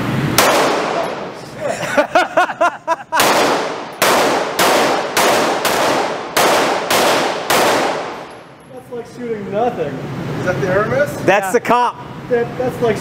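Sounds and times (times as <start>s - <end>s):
pistol shots with ringing tail: 0.4s - 1.4s, 3.2s - 8.6s.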